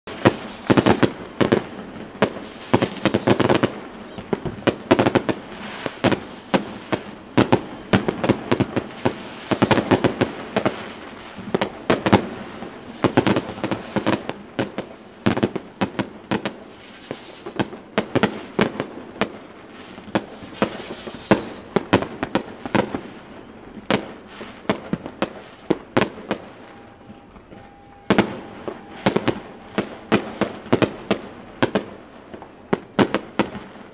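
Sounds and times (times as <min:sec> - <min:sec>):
fireworks bangs and booms: 0:00.1 - 0:33.9
high falling whistle: 0:00.2 - 0:01.5, 0:16.6 - 0:18.0, 0:20.2 - 0:23.7, 0:25.4 - 0:33.6.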